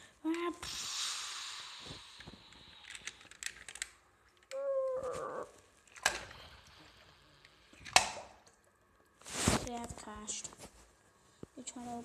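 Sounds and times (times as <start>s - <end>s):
toy cars clicking on porcelain: 2.7s - 4.6s.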